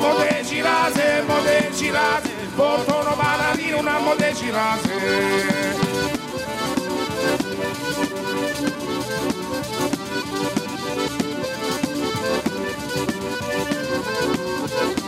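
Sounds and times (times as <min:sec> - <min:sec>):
man singing: 0:00.0 - 0:06.0
accordion: 0:00.0 - 0:15.0
frame drum beat: 0:00.0 - 0:15.0.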